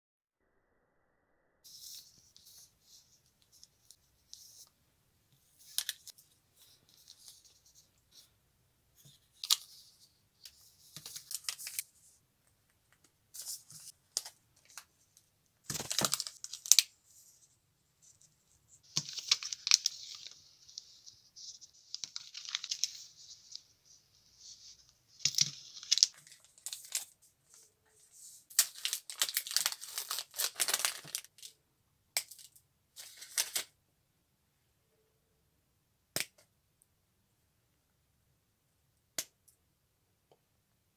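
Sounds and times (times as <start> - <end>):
wrappers crinkling and tearing: 15.7 - 16.9, 21.9 - 23.0, 28.5 - 31.5.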